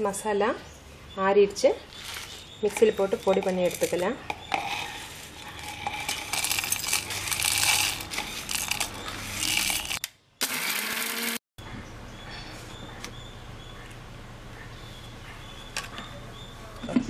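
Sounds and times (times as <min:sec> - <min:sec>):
plastic spoon scraping steel plate: 0:02.0 - 0:10.0
spices rattling into metal jar: 0:02.0 - 0:10.0.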